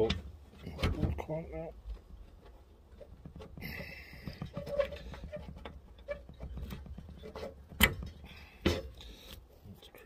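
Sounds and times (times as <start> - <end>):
hand tools scraping and clicking: 2.0 - 9.5.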